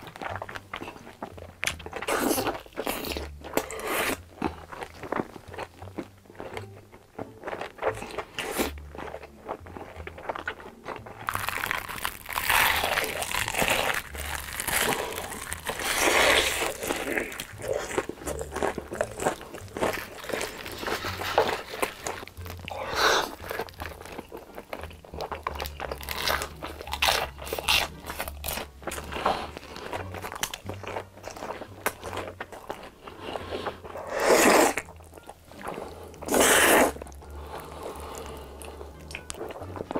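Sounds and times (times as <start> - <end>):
chewing: 0.0 - 39.9
crunching bites: 0.2 - 39.9
slurping noodles: 12.9 - 18.8, 22.7 - 23.7, 33.1 - 34.9, 35.6 - 38.8.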